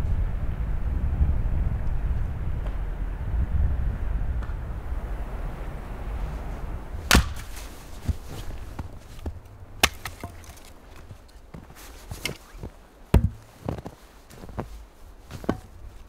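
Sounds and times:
axe chopping firewood: 7.1s - 7.6s, 9.2s - 11.1s, 13.1s - 13.5s.

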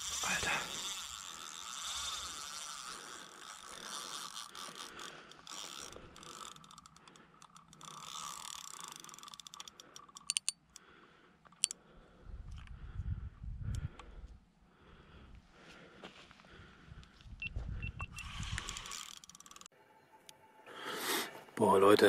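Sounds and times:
fishing reel whirring: 0.0s - 10.8s, 18.1s - 19.7s
sharp clicks: 8.6s - 10.8s.

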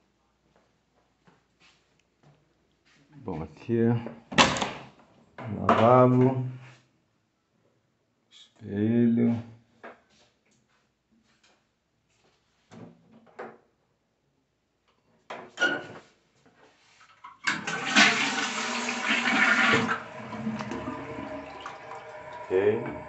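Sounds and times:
toilet flushing: 17.3s - 23.0s.

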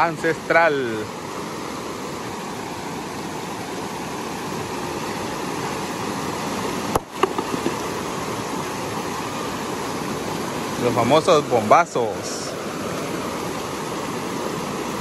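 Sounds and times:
river rapids rushing: 0.0s - 15.0s
stone striking rock: 6.9s - 7.9s.

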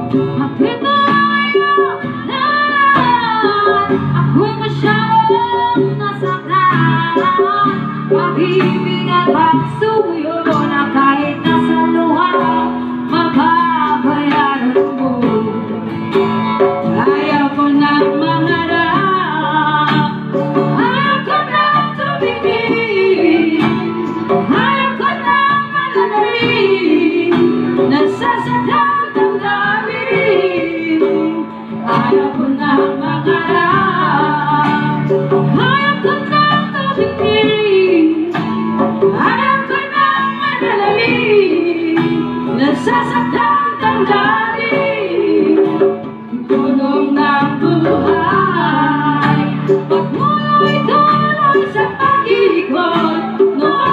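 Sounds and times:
hand drum: 0.0s - 53.9s
strummed acoustic guitar: 0.0s - 53.9s
women singing: 0.0s - 53.9s.

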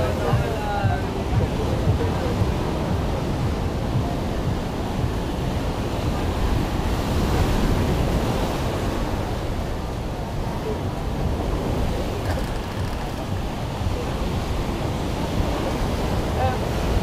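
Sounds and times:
wind buffeting microphone: 0.0s - 17.0s
surf breaking on rocks: 11.3s - 17.0s.

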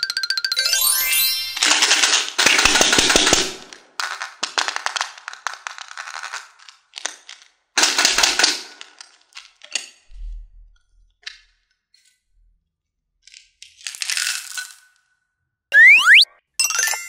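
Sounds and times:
candies rattling in plastic: 1.6s - 9.8s, 13.6s - 14.9s.

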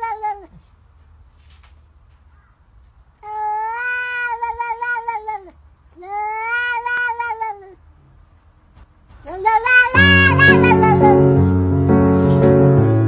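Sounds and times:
cat meowing: 0.0s - 0.6s, 3.2s - 7.8s, 9.2s - 11.2s.

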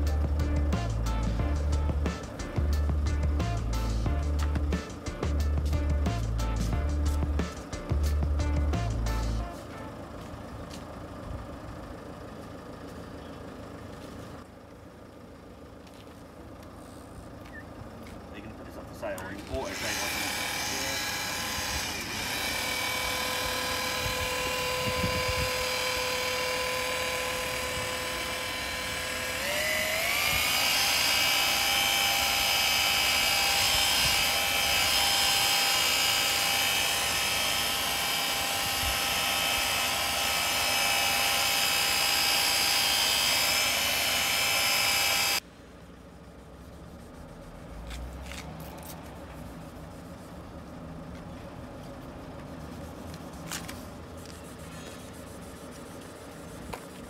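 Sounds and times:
electric polisher whining: 19.4s - 45.4s.

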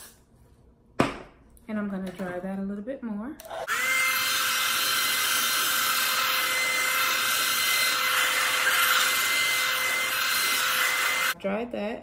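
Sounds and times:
hair dryer running: 3.4s - 11.4s.

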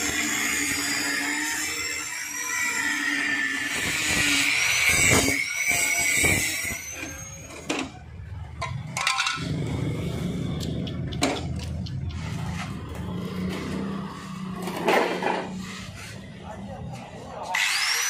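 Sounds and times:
angle grinder grinding metal: 0.0s - 7.7s, 17.4s - 18.0s
hand tool scraping and knocking metal: 8.6s - 9.5s.

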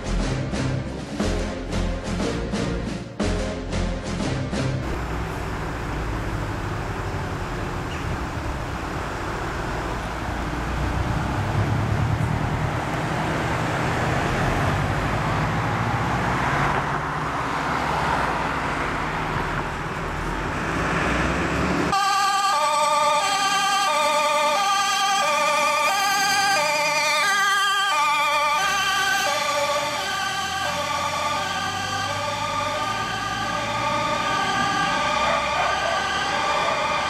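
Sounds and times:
diesel engine running: 4.6s - 37.0s
two-tone siren: 21.9s - 37.0s.

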